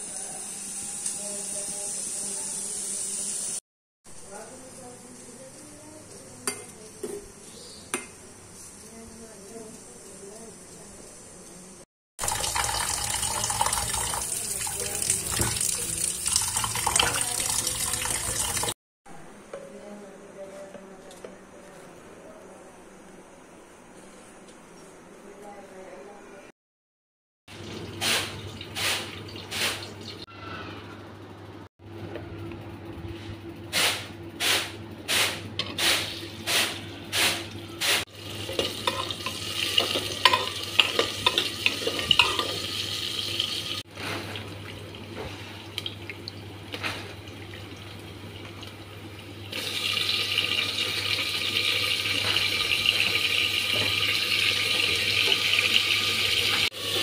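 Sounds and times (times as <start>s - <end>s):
frying sizzle: 12.2s - 18.8s, 27.5s - 30.3s, 33.7s - 57.0s.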